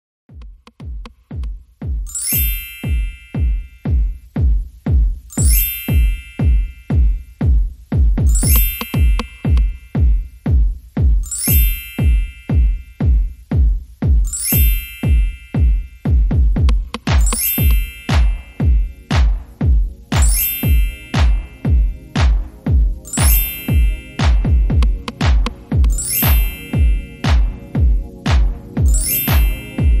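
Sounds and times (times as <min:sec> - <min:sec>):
electronic dance music: 0:00.3 - 0:30.0
steady kick drum: 0:00.3 - 0:30.0
chime-like chord stab: 0:23.0 - 0:24.9, 0:25.9 - 0:27.9, 0:28.8 - 0:30.0.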